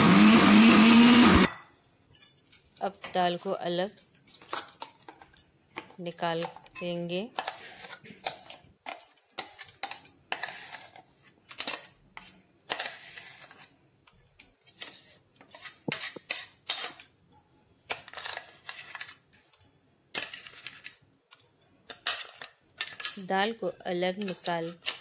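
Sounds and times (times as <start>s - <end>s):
metal spoon scraping steel jar: 6.7s - 13.7s, 14.7s - 17.2s.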